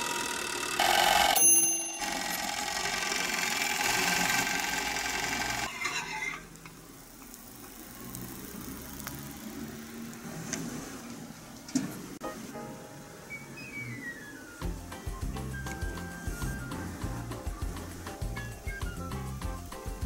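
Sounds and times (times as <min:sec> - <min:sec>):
timer bell dinging: 0:00.8 - 0:03.7.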